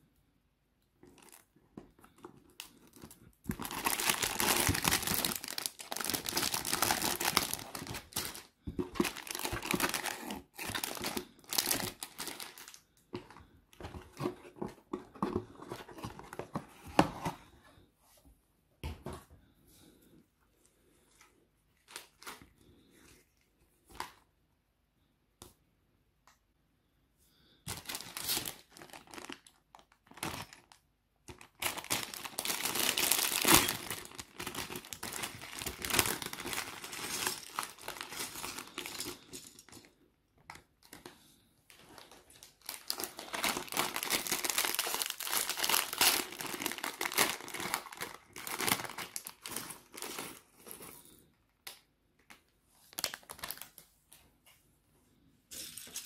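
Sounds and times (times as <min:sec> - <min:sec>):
plastic bag crinkling and tearing: 0:02.5 - 0:12.8, 0:27.7 - 0:39.9, 0:41.7 - 0:51.2, 0:52.9 - 0:53.8.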